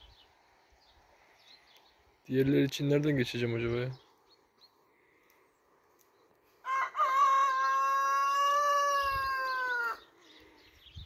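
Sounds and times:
rooster crowing: 6.6 - 10.0.

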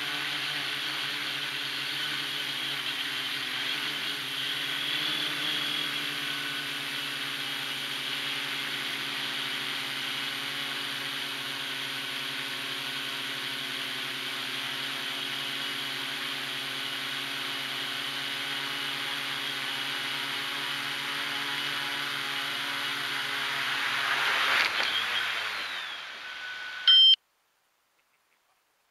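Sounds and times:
drone motors whirring: 0.0 - 16.8, 18.3 - 27.2
short loud beep: 26.2 - 27.2.

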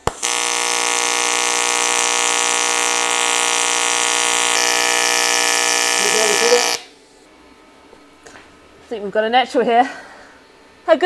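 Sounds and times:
welding arc buzzing and hissing: 0.0 - 7.0.

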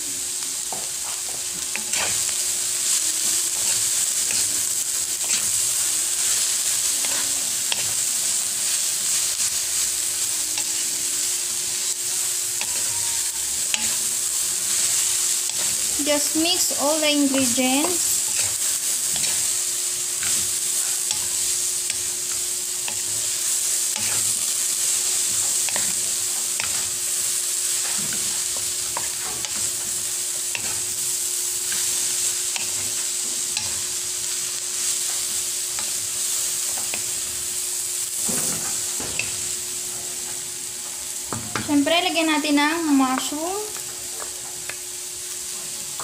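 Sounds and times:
vegetables sizzling in a pan: 0.0 - 46.0
utensil scraping a pan: 1.7 - 2.3.

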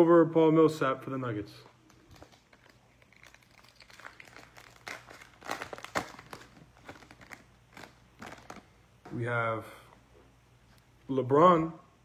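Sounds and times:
wrapper crinkling and tearing: 1.9 - 8.7.

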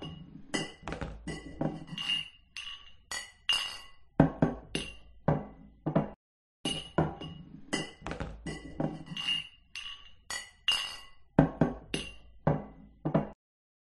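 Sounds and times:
beer glasses clinking: 6.7 - 11.2.

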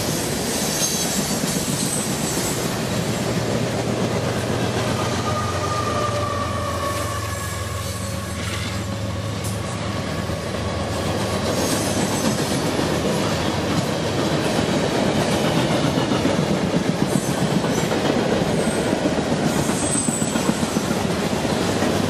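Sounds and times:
freight train rumbling past: 0.0 - 22.0
faint high squeal: 5.0 - 8.9.

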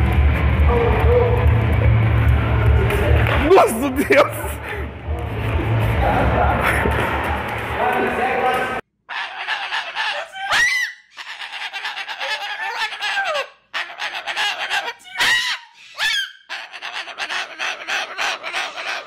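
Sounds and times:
cockatoo chattering and calling: 9.1 - 19.0
cockatoo screeches: 9.1 - 19.0.

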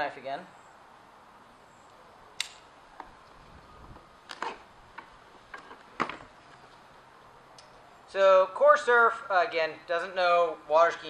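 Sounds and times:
light handling noises: 2.4 - 6.9.

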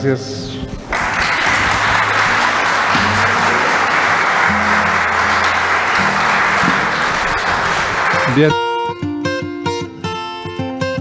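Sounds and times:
audience applauding: 0.9 - 8.6.

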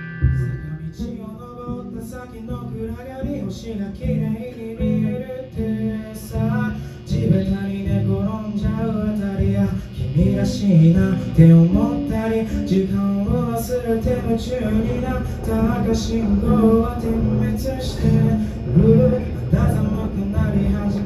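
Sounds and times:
rock band playing: 0.0 - 1.2
man singing: 0.3 - 21.0.

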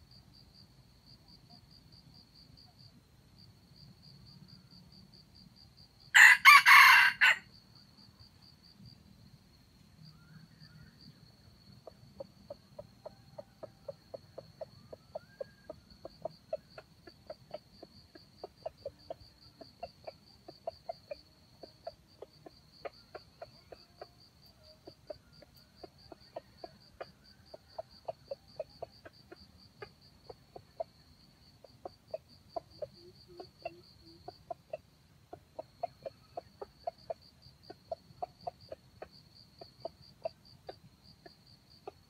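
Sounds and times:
junglefowl clucking: 6.2 - 7.4, 11.8 - 42.0.

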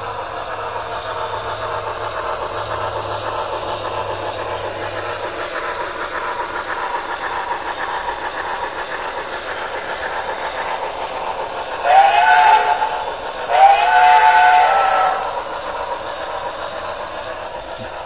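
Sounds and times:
model steam locomotive hissing: 0.0 - 18.0
wheels on track: 0.0 - 18.0.

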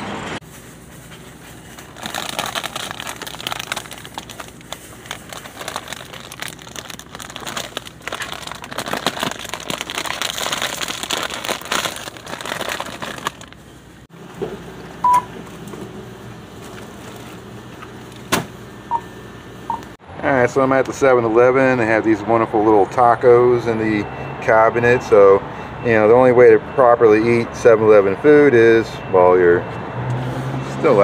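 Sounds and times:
crinkling rustling handling noise: 0.4 - 14.1.

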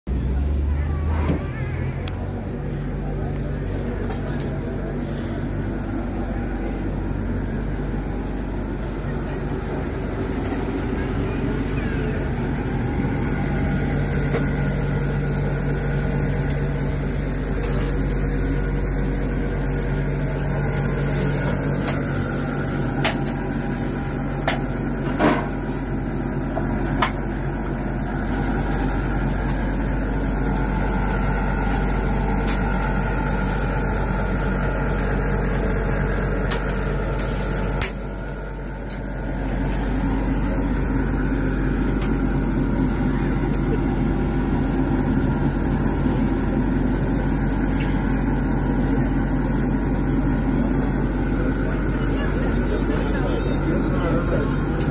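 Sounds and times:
steady mechanical hum: 0.1 - 54.9
patties sizzling on grill: 26.6 - 42.1.

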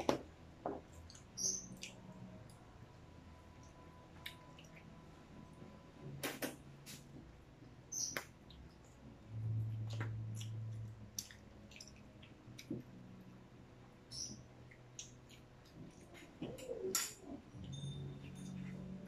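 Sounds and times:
low steady hum: 0.0 - 19.0
chewing mouth clicks and smacks: 1.0 - 2.6, 9.8 - 12.9, 14.7 - 16.7.

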